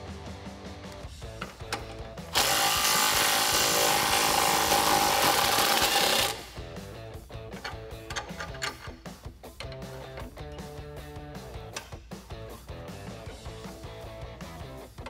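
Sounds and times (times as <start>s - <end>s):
background music: 0.0s - 15.0s
impact wrench burst: 2.3s - 6.6s.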